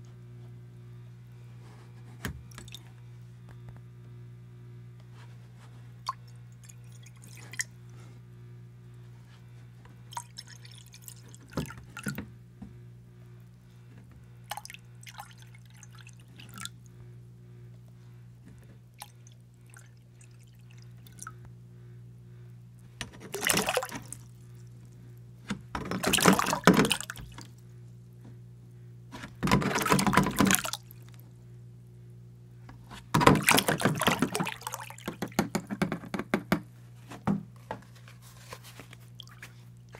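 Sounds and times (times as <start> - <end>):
water splashing and sloshing: 2.5 - 2.9, 6.0 - 7.7, 10.1 - 12.2, 14.4 - 16.8, 18.9 - 21.4, 23.0 - 24.7, 25.5 - 27.6, 29.2 - 31.2, 32.9 - 35.6, 38.1 - 39.9
water pouring into bowl: 23.3 - 24.3, 29.6 - 30.9, 33.3 - 35.1.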